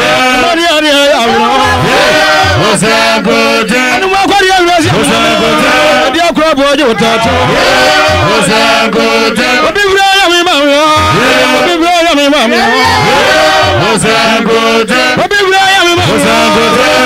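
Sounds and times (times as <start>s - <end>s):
person singing with vibrato: 0.0s - 4.2s, 4.8s - 17.0s
instrumental backing: 6.9s - 9.7s.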